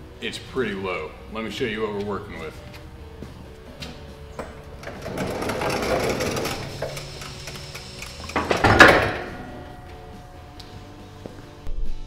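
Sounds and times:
load coming down: 4.4 - 7.2, 8.2 - 10.7.

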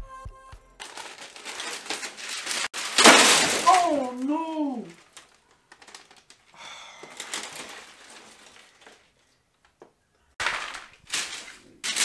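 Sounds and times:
paper and cardboard rustling: 0.8 - 6.5, 7.1 - 9.2, 10.4 - 12.0
glass shelf crashing and shattering: 0.9 - 4.3, 10.4 - 12.0.

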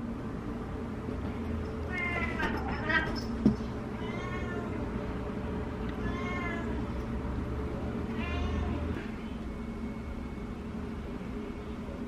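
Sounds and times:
steady low hum: 0.0 - 12.0
cat meowing: 1.9 - 3.2, 3.9 - 4.8, 5.9 - 6.8, 8.1 - 9.0.

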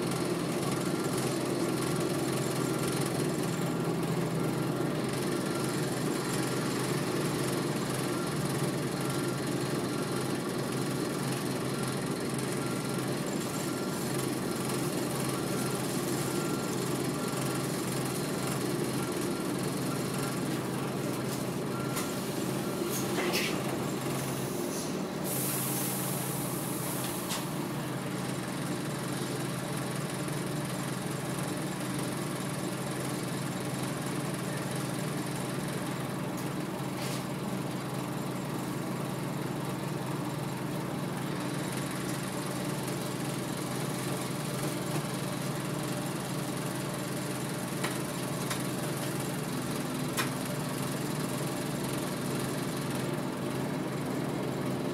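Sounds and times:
bus engine droning: 0.0 - 54.9
compressed air hiss: 24.3 - 27.5.

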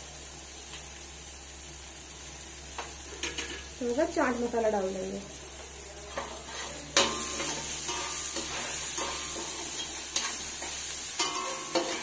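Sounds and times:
masala sizzling in a pan: 0.0 - 12.0
spatula stirring and scraping: 6.1 - 12.0.

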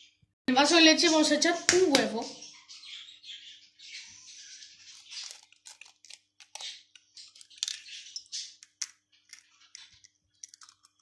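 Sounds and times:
eggshell cracking: 4.9 - 11.0.

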